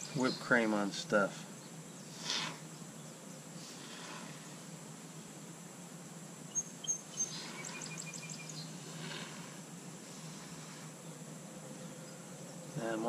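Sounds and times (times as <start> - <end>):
small bird chirping: 0.0 - 5.3, 6.4 - 9.4
high insect drone: 0.0 - 13.0.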